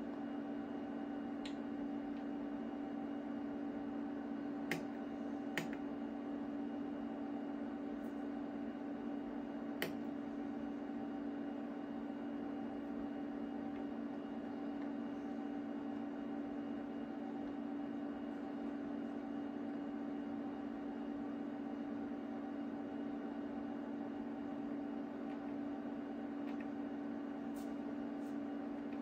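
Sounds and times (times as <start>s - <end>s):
instrument rack hum: 23.9s - 29.0s.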